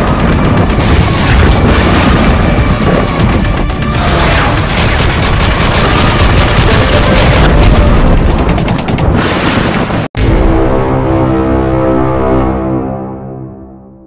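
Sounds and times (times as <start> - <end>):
loud intro music: 0.0 - 9.2, 10.1 - 14.0
machine-gun fire: 0.0 - 10.0
explosion booms: 0.3 - 3.4.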